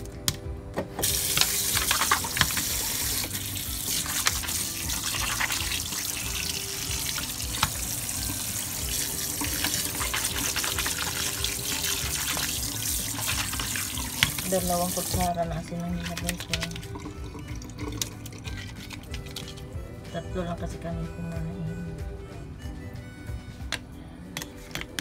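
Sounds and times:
tap water splashing: 0:01.0 - 0:19.7.

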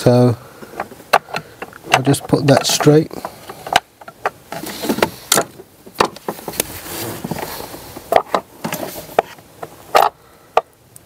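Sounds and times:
sharp metal knocks and clicks: 0:00.6 - 0:06.6.

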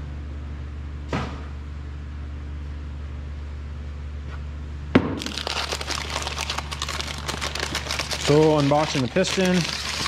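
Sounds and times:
low background hum: 0:00.0 - 0:10.0
paper wrapping crinkling: 0:05.2 - 0:10.0.

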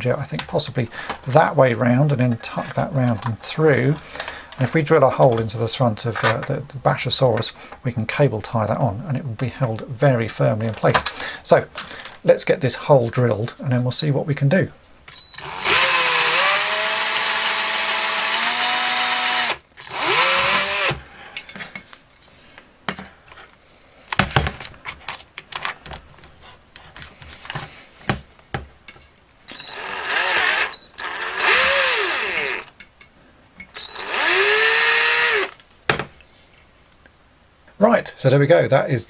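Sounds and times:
cordless drill boring plastic: 0:15.1 - 0:21.0, 0:29.5 - 0:32.7, 0:33.7 - 0:35.6.

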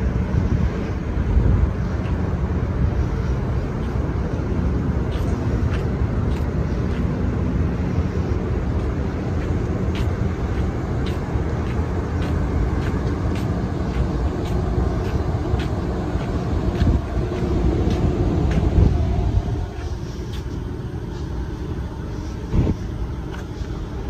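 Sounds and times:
ship machinery rumble: 0:00.0 - 0:24.0
footsteps on concrete: 0:05.0 - 0:07.2, 0:08.8 - 0:19.0.

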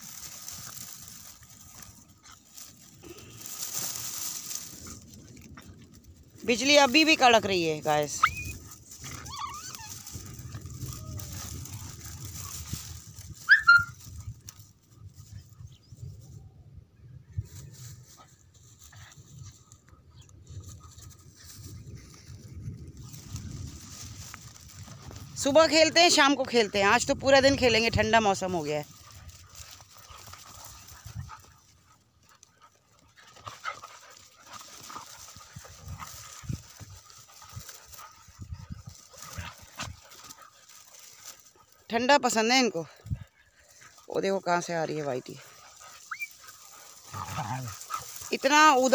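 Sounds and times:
dogs scuffling: 0:00.0 - 0:15.2, 0:20.6 - 0:48.9
dog yelping: 0:08.2 - 0:11.5, 0:13.4 - 0:14.0, 0:46.1 - 0:46.4
dogs panting: 0:08.3 - 0:13.4, 0:24.0 - 0:48.9
dog whining: 0:09.2 - 0:10.1, 0:13.5 - 0:14.0.

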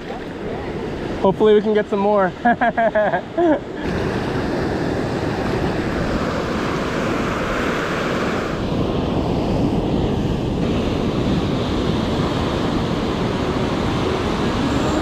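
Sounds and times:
ocean surf breaking on sand: 0:00.0 - 0:15.0
wind rumbling on microphone: 0:03.7 - 0:15.0.

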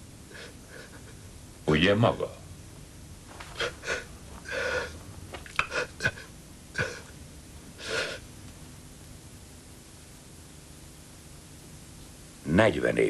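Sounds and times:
person breathing heavily: 0:03.4 - 0:08.3.

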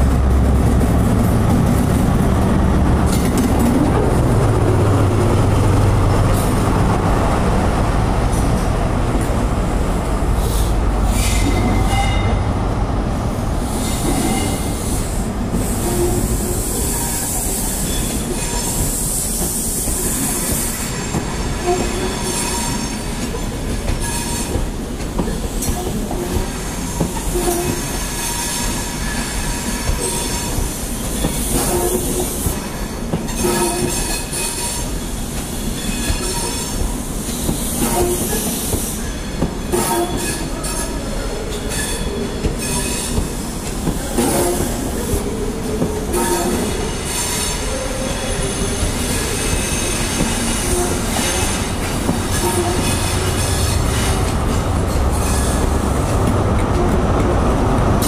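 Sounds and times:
diesel locomotive engine: 0:00.0 - 0:58.0
train wheel squeal: 0:10.4 - 0:12.5, 0:13.7 - 0:45.4, 0:46.1 - 0:55.8.

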